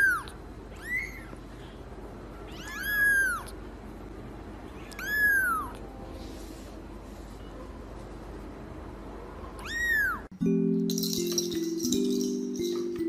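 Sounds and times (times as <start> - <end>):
kitten mewing: 2.5 - 3.6, 4.8 - 5.8.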